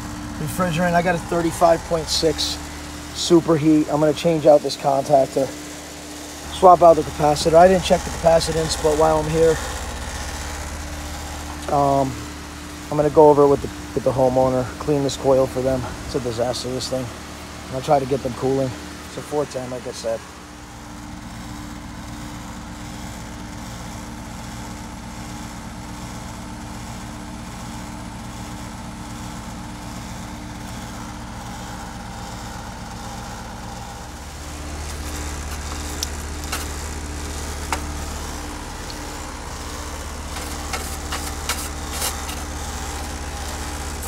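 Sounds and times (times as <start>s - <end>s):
heat pump unit humming: 0.0s - 44.0s.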